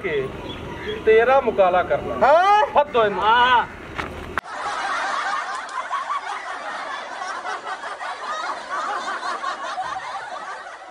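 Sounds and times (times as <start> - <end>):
crowd laughter: 4.4 - 10.9.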